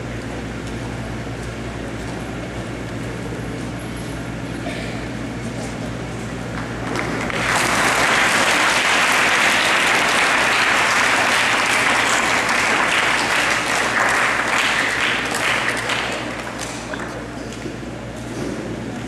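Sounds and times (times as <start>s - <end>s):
crowd clapping: 6.5s - 17.6s.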